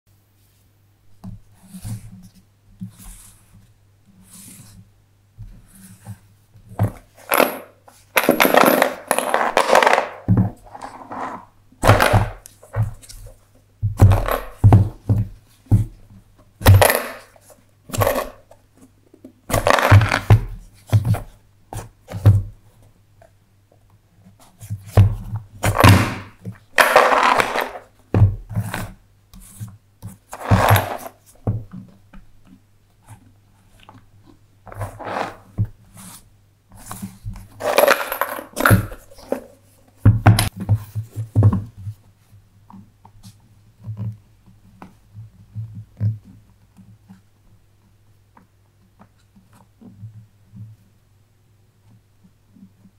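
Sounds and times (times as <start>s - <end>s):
wooden tiles clicking and scraping: 6.8s - 13.4s, 25.6s - 27.9s, 30.2s - 31.2s, 36.8s - 39.6s.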